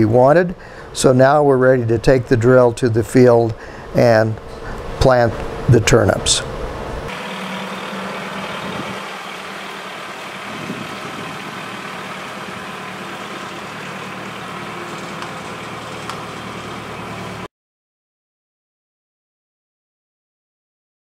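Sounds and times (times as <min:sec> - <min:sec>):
tractor engine running: 0:06.8 - 0:17.5.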